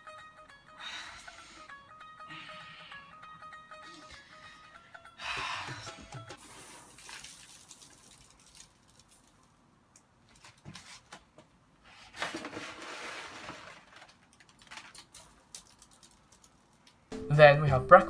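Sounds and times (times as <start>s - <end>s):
rice grains pattering on bedding: 6.4s - 9.5s.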